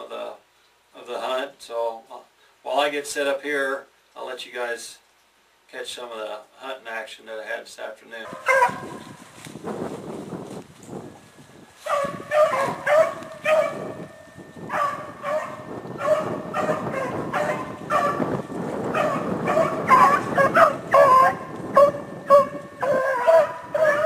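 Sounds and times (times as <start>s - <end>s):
dogs baying: 8.2s - 9.1s, 11.8s - 24.0s.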